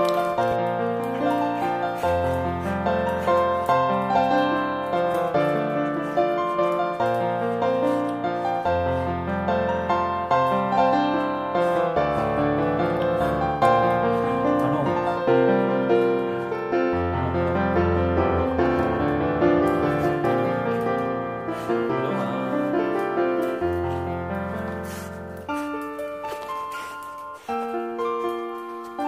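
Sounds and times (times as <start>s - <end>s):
piano music: 0.0s - 29.0s.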